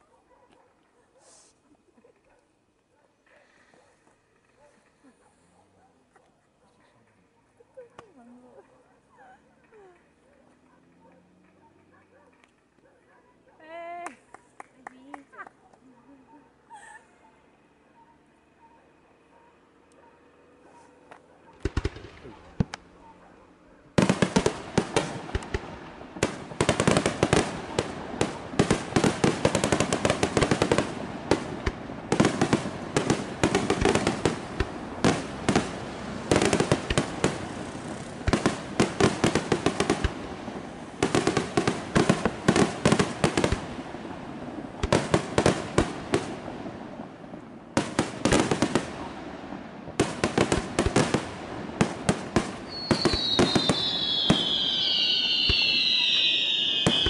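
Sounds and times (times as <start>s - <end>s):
fireworks bangs and crackling: 21.6s - 23.1s, 23.9s - 57.0s
high falling whistle: 52.7s - 57.0s.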